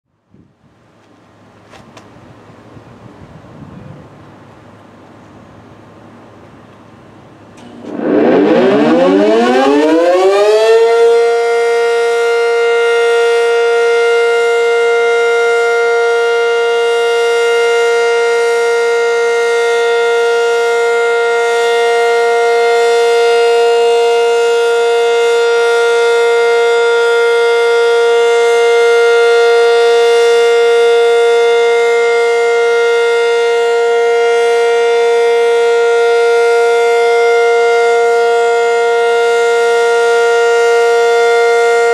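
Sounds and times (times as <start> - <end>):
siren winding up: 7.6 - 11.4.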